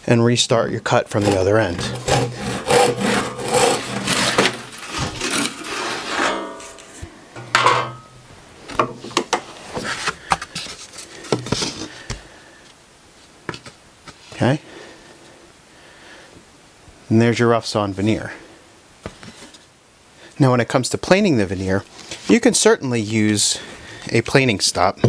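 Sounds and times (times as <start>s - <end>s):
hand saw rasping through wood: 1.1s - 6.6s.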